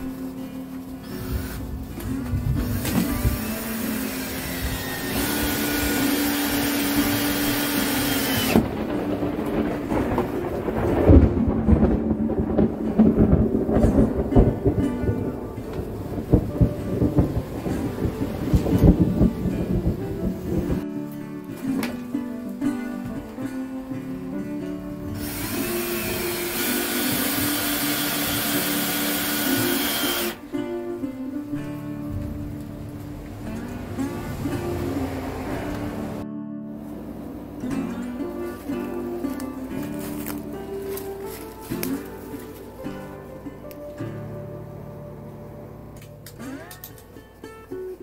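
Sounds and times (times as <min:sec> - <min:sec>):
cordless drill running: 0:01.1 - 0:01.6, 0:02.7 - 0:08.6, 0:25.2 - 0:30.4.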